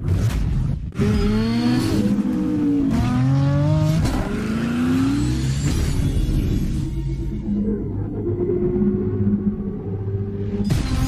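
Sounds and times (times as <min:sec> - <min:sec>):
engine revving: 0:00.9 - 0:06.9.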